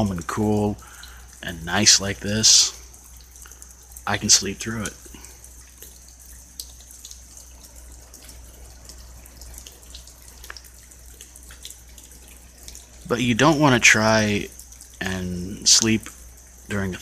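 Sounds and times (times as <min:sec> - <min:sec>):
drips ticking: 0:00.0 - 0:17.0
steady rain falling: 0:00.0 - 0:17.0.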